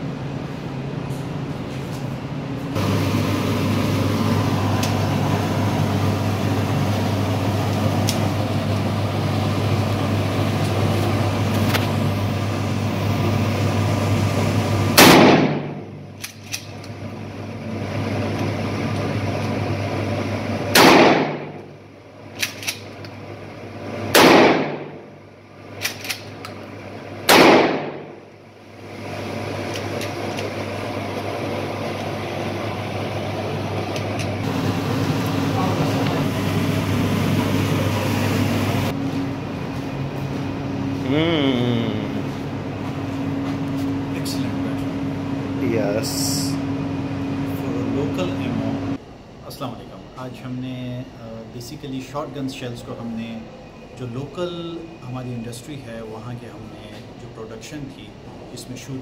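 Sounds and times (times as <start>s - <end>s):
steady low hum: 0.0s - 59.0s
shotgun shots echoing: 15.0s - 15.8s, 20.7s - 21.6s, 24.1s - 25.0s, 27.3s - 28.2s.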